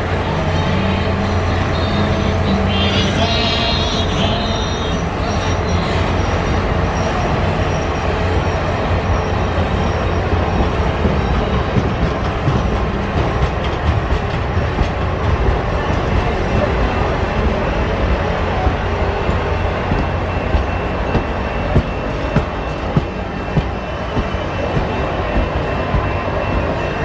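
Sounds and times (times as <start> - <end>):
train wheels rumbling on rails: 0.0 - 27.0
high wheel squeal: 0.6 - 10.6.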